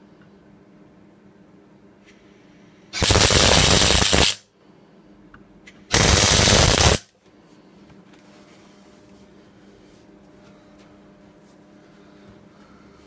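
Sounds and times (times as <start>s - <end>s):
welder arc crackling: 3.0s - 4.4s, 5.9s - 7.1s.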